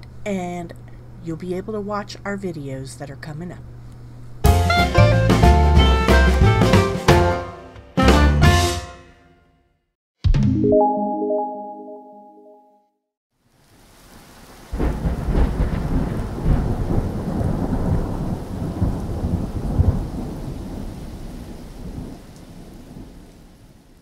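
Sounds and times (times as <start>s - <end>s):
rain hissing: 13.4s - 23.1s
thunder clap rolling: 14.7s - 22.2s.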